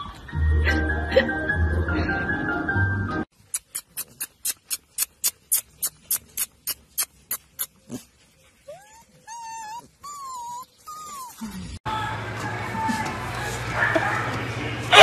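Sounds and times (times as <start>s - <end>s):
puppies whining: 5.8s - 11.8s.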